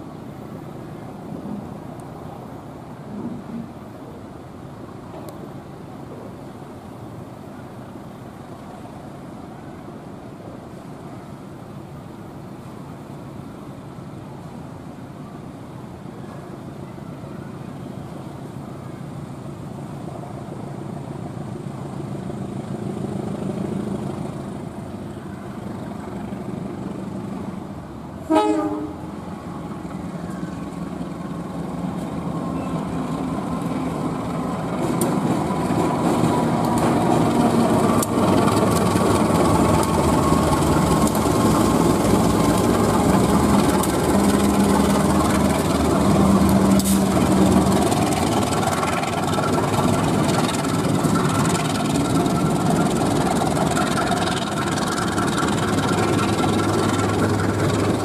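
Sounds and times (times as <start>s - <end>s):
diesel locomotive engine: 0.0s - 58.0s
train horn blast: 28.2s - 29.2s
clicking train wheels: 29.8s - 58.0s.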